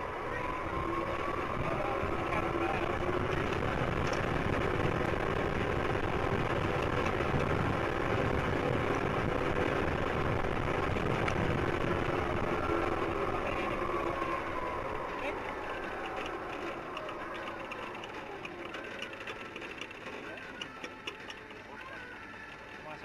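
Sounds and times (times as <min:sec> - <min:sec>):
rushing wind noise: 0:00.0 - 0:16.8
zip line trolley whirring: 0:00.0 - 0:23.0.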